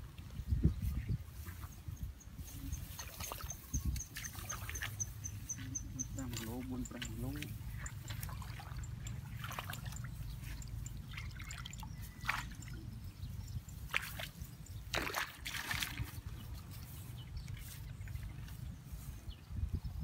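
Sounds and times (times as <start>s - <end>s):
muddy water stirred by hand: 2.4s - 19.3s
water splashes and drips: 2.9s - 5.1s, 6.0s - 12.9s, 13.7s - 18.6s.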